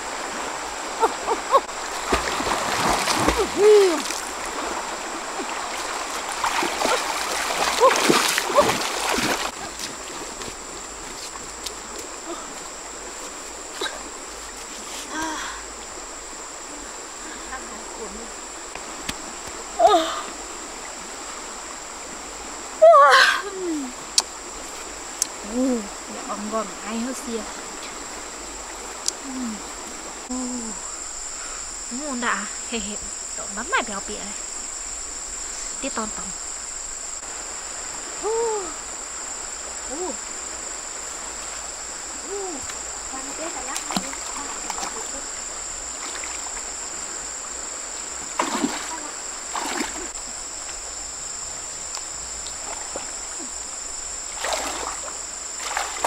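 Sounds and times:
water splashing from wading: 0:00.0 - 0:11.2, 0:42.6 - 0:50.9, 0:51.9 - 0:56.0
insects droning: 0:00.0 - 0:56.0
river flowing: 0:00.0 - 0:56.0.

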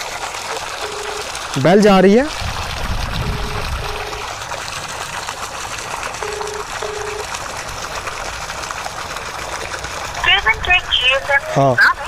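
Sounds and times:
pump motor running: 0:00.0 - 0:12.0
water gushing from pipe: 0:00.0 - 0:12.0
phone ringback tone: 0:00.8 - 0:01.3, 0:03.2 - 0:04.2, 0:06.2 - 0:07.2.

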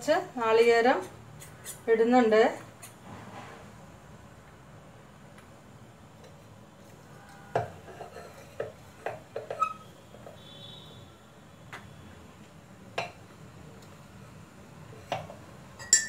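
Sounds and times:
metal jar knocks and clinks: 0:15.8 - 0:16.0.

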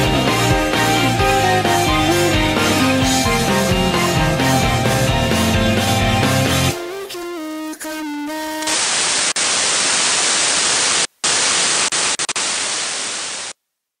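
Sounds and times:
white noise static: 0:08.6 - 0:13.6.

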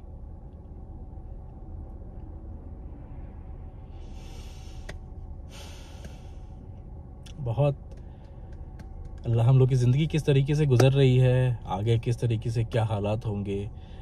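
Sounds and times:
long exhaled breaths: 0:03.8 - 0:06.6
car cabin hum: 0:04.4 - 0:13.9.

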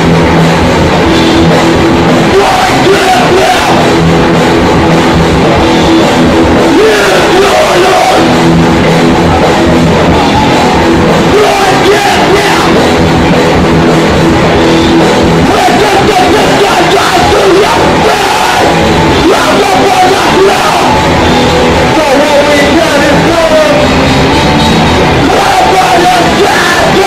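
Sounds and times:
heavy rock band playing: 0:00.0 - 0:27.0
vocalist yelling into microphone: 0:02.2 - 0:04.0, 0:06.6 - 0:08.4, 0:10.2 - 0:13.0, 0:15.4 - 0:21.2, 0:21.8 - 0:24.0, 0:25.1 - 0:27.0.

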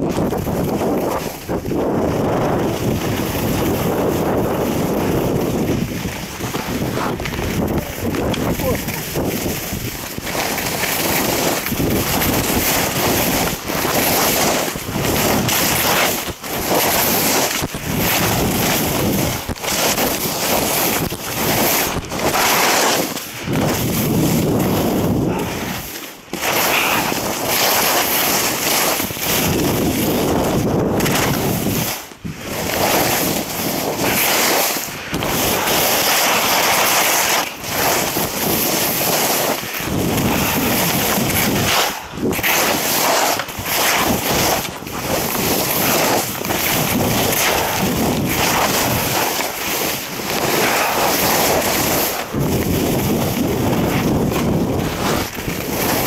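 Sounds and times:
wind buffeting microphone: 0:00.0 - 0:27.5, 0:28.8 - 0:34.3, 0:37.6 - 0:42.8, 0:43.4 - 0:56.0
skis scraping on snow: 0:00.0 - 0:56.0.

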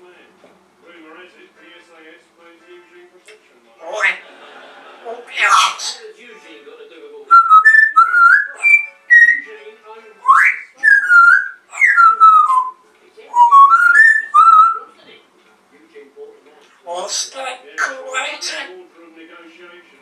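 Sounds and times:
parrot whistling: 0:05.3 - 0:06.0, 0:07.3 - 0:09.5, 0:10.2 - 0:14.9.

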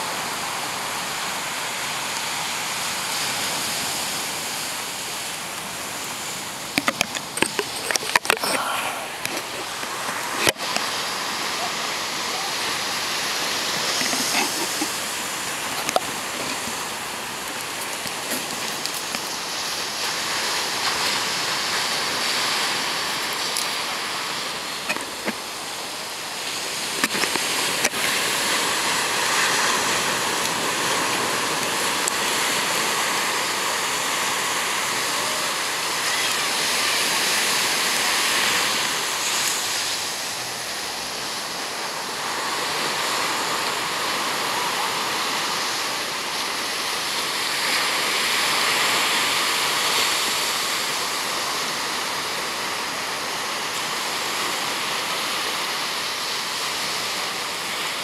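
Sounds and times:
ocean surf breaking on beach: 0:00.0 - 0:58.0.

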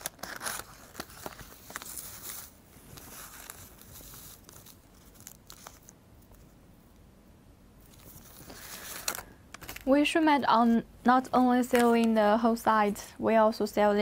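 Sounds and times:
paper crinkling: 0:00.0 - 0:06.6, 0:07.8 - 0:09.9.

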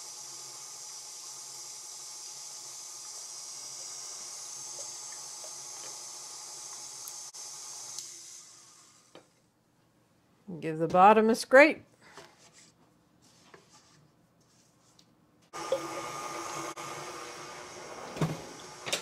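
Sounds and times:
stand mixer running: 0:15.6 - 0:19.0.

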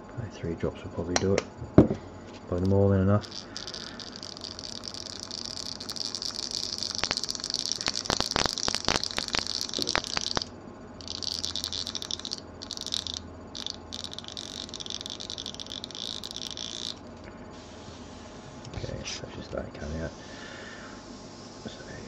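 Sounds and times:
sharp clicks and rattles: 0:02.6 - 0:17.0.

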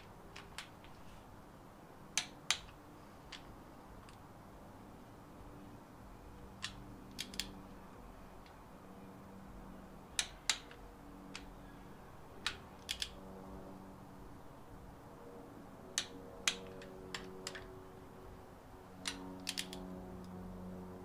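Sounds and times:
faint steady hum: 0:00.0 - 0:21.0
wrench metallic clicks: 0:02.2 - 0:04.2, 0:06.6 - 0:07.5, 0:10.2 - 0:10.8, 0:12.4 - 0:13.2, 0:16.0 - 0:17.7, 0:19.0 - 0:19.8.

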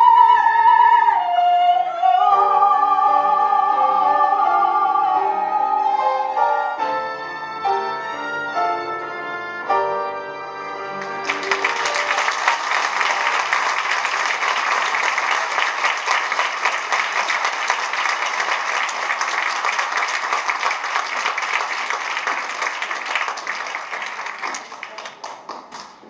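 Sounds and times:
music: 0:00.0 - 0:14.1
audience applause: 0:11.0 - 0:26.0.

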